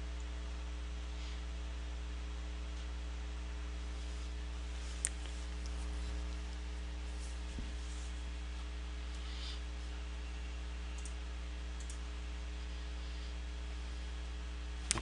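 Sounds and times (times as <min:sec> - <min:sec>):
electrical mains hum: 0:00.0 - 0:15.0
faint clicks: 0:11.0 - 0:11.2, 0:11.8 - 0:12.0.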